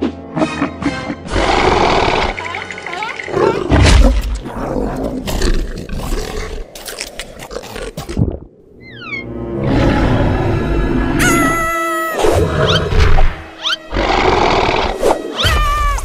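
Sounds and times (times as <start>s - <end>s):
music: 0.0s - 4.4s, 8.8s - 16.0s
loud animal-like roaring: 13.9s - 15.0s.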